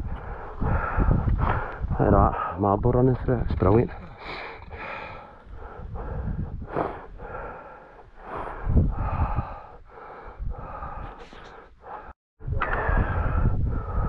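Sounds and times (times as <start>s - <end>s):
person breathing hard: 0.0s - 2.6s, 4.1s - 14.0s
wind buffeting microphone: 0.0s - 11.5s, 12.4s - 14.0s.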